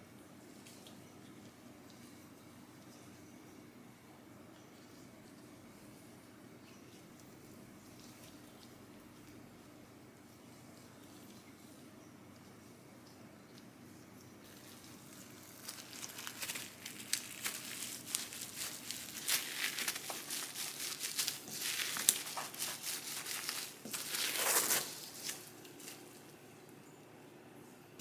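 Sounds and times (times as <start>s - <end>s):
plastic wrap crinkling: 14.4s - 26.3s.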